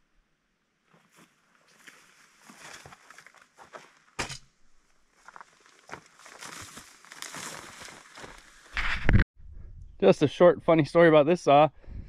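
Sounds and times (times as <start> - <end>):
footsteps through tall grass: 0.9 - 4.2, 5.1 - 9.1.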